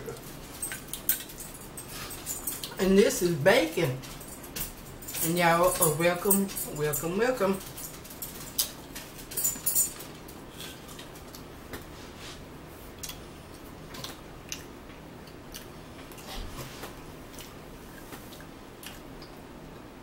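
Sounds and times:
people chewing: 0.0s - 2.8s, 10.2s - 19.4s
food crunching: 12.9s - 16.3s, 17.3s - 19.4s.

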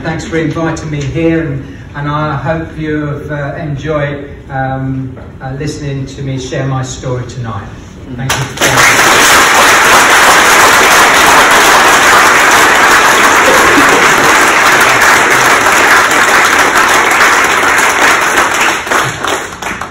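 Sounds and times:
audience applauding: 8.3s - 19.9s.

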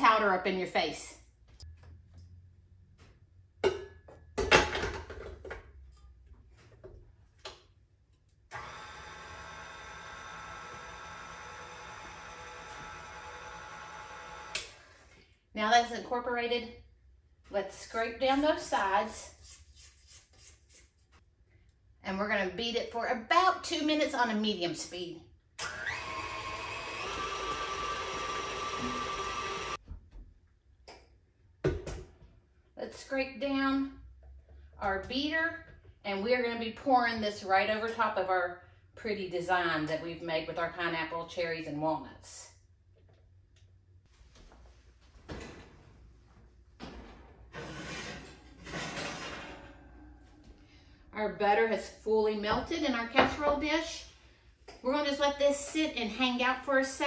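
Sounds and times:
mixer motor whine: 8.5s - 15.1s, 25.6s - 29.8s.

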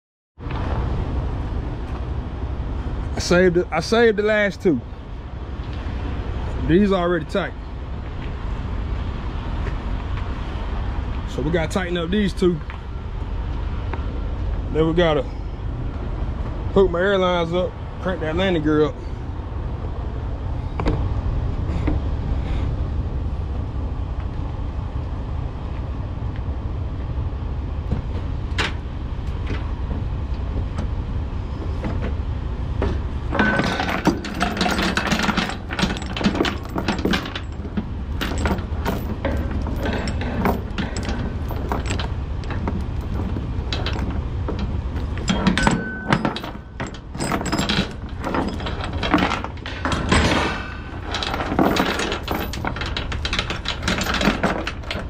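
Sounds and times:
steady low rumble: 0.4s - 55.0s
steel chain rattling and clanking: 33.3s - 55.0s.

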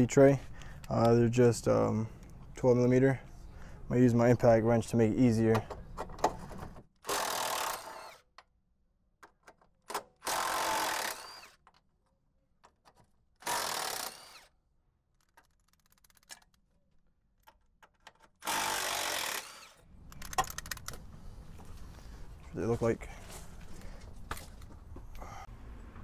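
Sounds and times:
impact wrench bursts: 10.2s - 11.6s, 13.4s - 14.5s, 18.4s - 20.8s.

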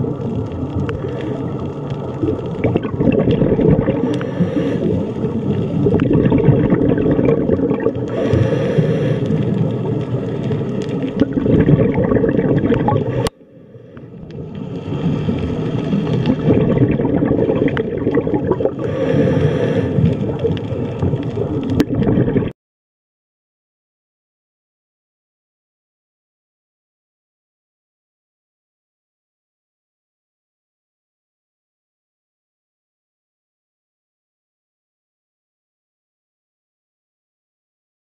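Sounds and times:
bubbling hiss: 0.0s - 22.5s
low rumbling underwater noise: 0.0s - 22.5s.

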